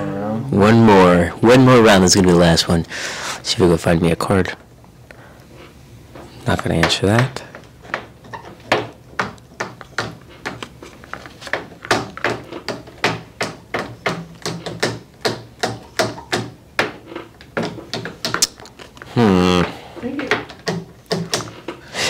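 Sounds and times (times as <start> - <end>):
cards clicking and tapping: 6.6 - 21.8.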